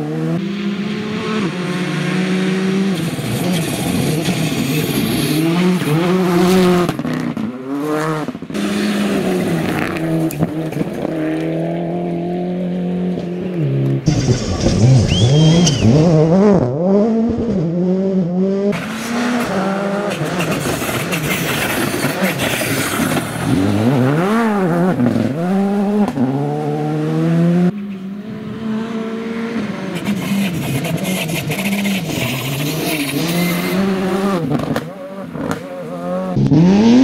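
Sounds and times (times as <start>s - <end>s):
cars passing: 0.0s - 37.0s
rally car engines revving hard: 0.0s - 37.0s.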